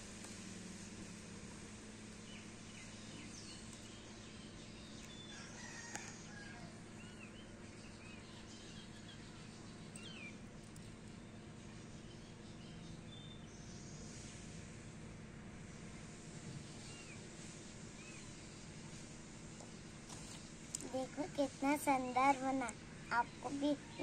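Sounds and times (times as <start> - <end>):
small birds chirping: 2.0 - 14.7, 15.8 - 24.0
distant rooster crowing: 5.2 - 7.2.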